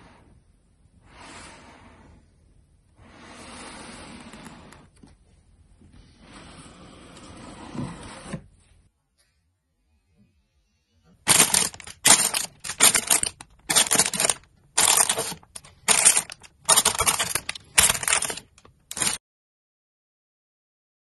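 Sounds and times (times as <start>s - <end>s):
plastic bags crinkling: 11.3s - 19.2s.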